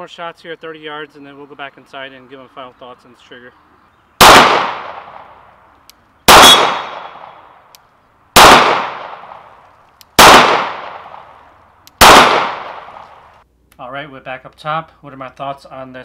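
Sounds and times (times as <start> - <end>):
pistol shots with echo: 4.2 - 5.3, 6.3 - 7.4, 8.4 - 9.4, 10.2 - 11.4, 12.0 - 13.2.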